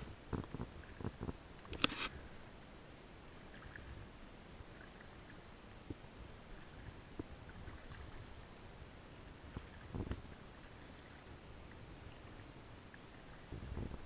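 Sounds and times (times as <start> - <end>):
paddle splashing water: 3.3 - 14.0
water dripping and lapping: 3.3 - 14.0.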